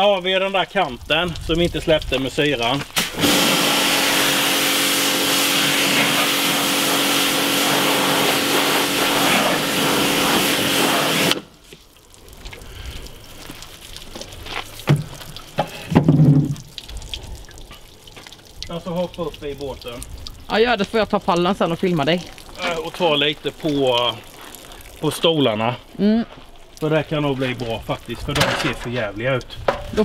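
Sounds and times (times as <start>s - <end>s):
water jet hissing on hull: 2.9s - 11.8s
pressure washer pump humming: 3.0s - 11.5s.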